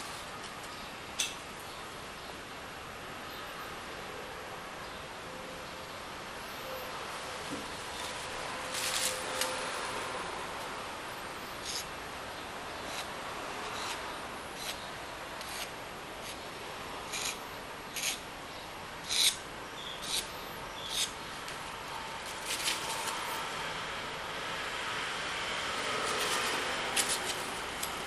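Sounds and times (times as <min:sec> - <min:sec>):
palette knife scraping paint: 0:11.6 - 0:11.9, 0:12.8 - 0:14.0, 0:14.6 - 0:14.8, 0:15.4 - 0:16.4, 0:17.1 - 0:17.4, 0:18.0 - 0:18.2, 0:19.0 - 0:19.4, 0:20.0 - 0:20.3, 0:20.9 - 0:21.2.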